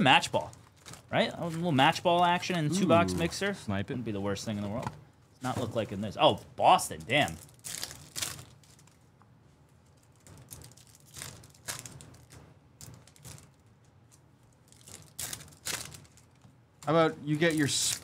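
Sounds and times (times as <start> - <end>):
foil wrapper crinkling: 7.0 - 9.1, 9.8 - 13.6, 14.6 - 16.4, 17.4 - 18.0.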